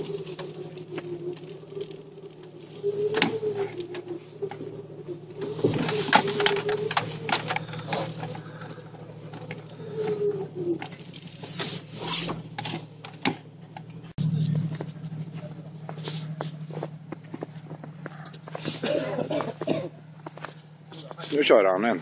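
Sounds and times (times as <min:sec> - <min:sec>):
vehicle knocks and rattles: 0:00.0 - 0:11.7
engine running at low speed: 0:00.0 - 0:22.0.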